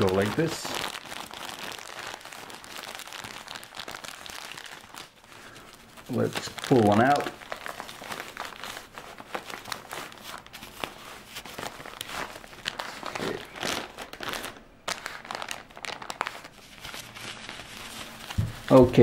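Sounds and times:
plastic diaper pack crinkling: 0:00.0 - 0:19.0.

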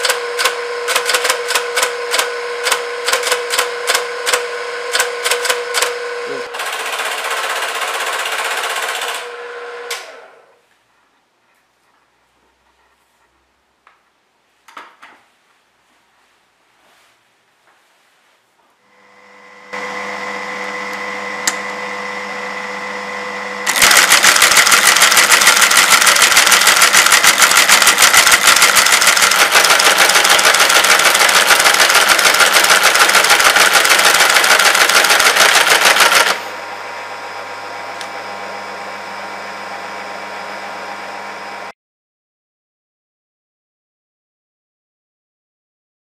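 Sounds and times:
teleprinter printing clatter: 0:00.0 - 0:09.3, 0:23.7 - 0:36.6
teleprinter motor humming: 0:00.0 - 0:09.9, 0:23.6 - 0:38.5.

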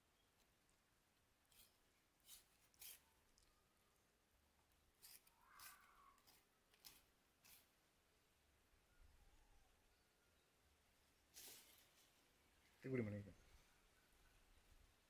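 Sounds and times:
knife slicing and scraping fish: 0:01.5 - 0:03.0, 0:05.0 - 0:07.7.

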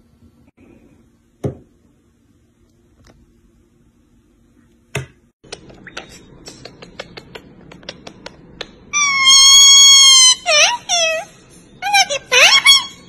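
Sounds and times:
parrot calling: 0:08.9 - 0:13.0.

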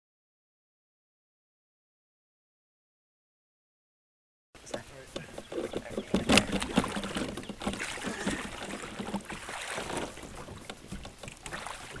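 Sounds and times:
water sloshing around canoe hull: 0:04.6 - 0:12.0
knocks against canoe: 0:04.7 - 0:12.0.

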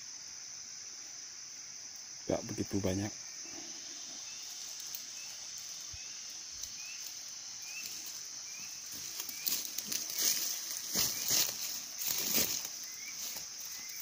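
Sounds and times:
high-pitched insect drone: 0:00.0 - 0:14.0
rustling: 0:06.6 - 0:14.0.

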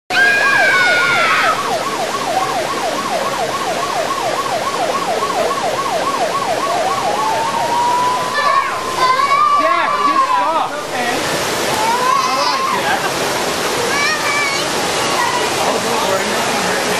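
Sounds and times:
falling high-pitched tone: 0:00.1 - 0:10.0
emergency siren yelping and wailing: 0:00.1 - 0:10.5, 0:11.7 - 0:13.0.

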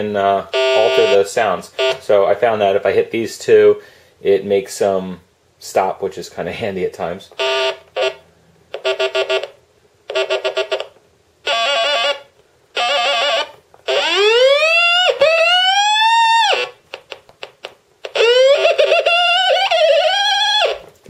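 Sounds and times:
buzzy warbling electronic tones: 0:00.5 - 0:02.0, 0:18.1 - 0:20.9
rising siren-like synth sweeps: 0:13.9 - 0:16.8.

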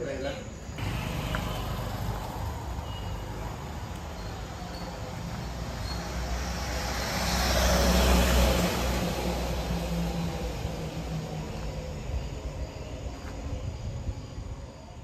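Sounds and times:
vehicle engine rumble: 0:00.6 - 0:15.0.

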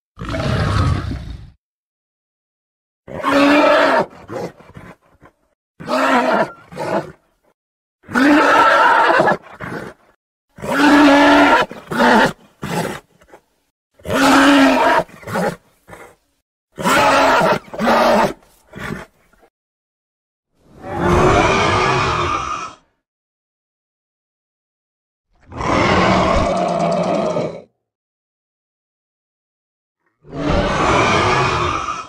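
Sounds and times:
monster roar: 0:00.2 - 0:01.6, 0:20.8 - 0:22.9, 0:25.5 - 0:27.7, 0:30.2 - 0:32.0.

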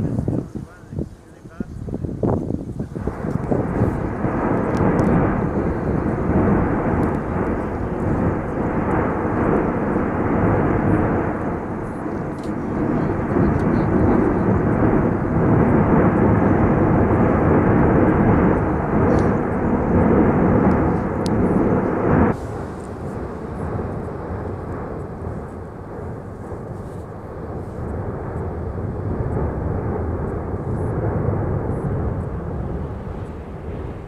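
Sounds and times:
volcanic vent roaring: 0:00.0 - 0:34.0.

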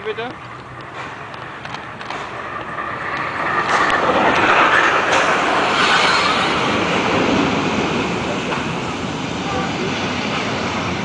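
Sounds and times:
train rolling past: 0:00.0 - 0:11.0
wheels running on rails: 0:00.0 - 0:11.0
clicks from the track: 0:00.2 - 0:04.5.

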